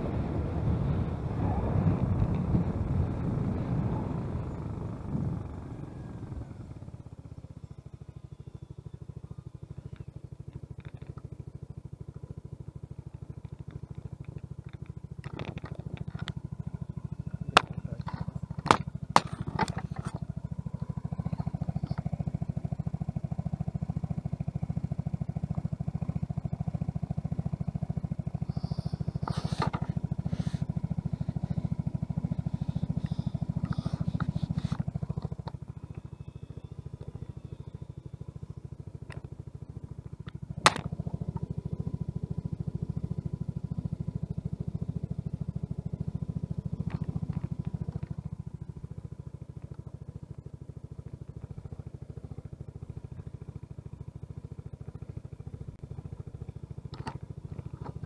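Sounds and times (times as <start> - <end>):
scooter ride noise: 0.0 - 7.2, 7.8 - 58.0
scooter engine idling: 0.0 - 58.0
camera knocking against scooter: 17.6 - 20.2, 29.2 - 30.0, 40.7 - 41.0.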